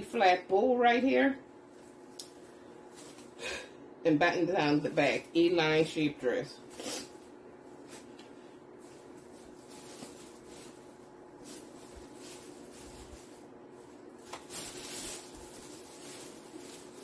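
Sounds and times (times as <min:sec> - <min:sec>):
faint steady hum: 0:00.0 - 0:17.0
fabric rustling: 0:01.6 - 0:03.4, 0:07.0 - 0:17.0.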